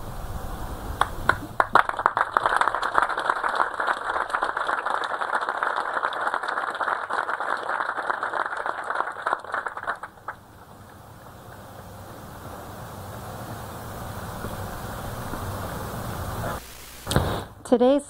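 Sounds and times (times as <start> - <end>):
audience applauding: 1.0 - 11.6.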